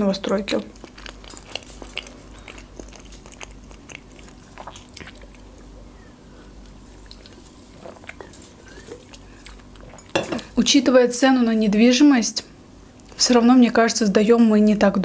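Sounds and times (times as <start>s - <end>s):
chewing with wet mouth clicks: 0.5s - 5.8s, 6.6s - 10.2s
sipping and swallowing: 0.8s - 5.8s, 6.6s - 10.5s.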